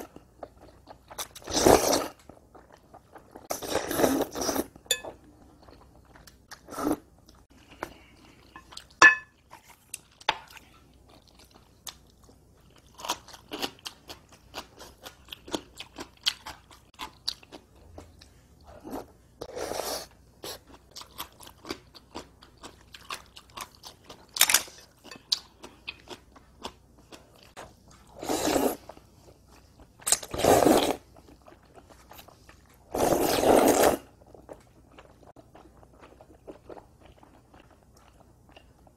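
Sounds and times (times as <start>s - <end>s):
slurping noodles: 1.4s - 2.2s, 3.4s - 4.8s, 18.8s - 20.2s, 28.1s - 28.9s, 30.2s - 31.1s, 32.9s - 34.1s
chewing noodles with mouth clicks: 20.0s - 38.9s.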